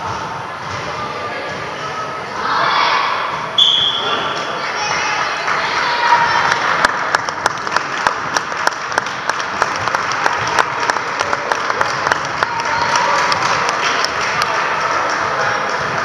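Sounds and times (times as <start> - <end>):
spectators clapping: 4.8 - 16.0.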